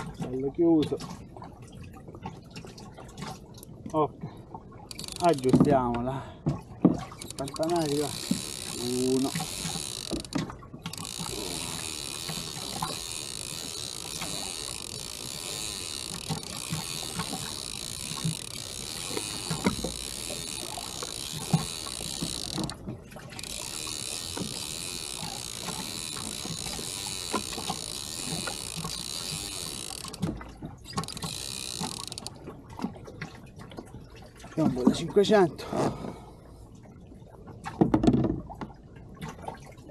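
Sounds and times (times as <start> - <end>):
fishing reel paying out line: 4.9 - 5.7, 7.2 - 22.8, 23.4 - 32.4
gear knocking on kayak: 4.9 - 6.0, 6.9 - 32.3.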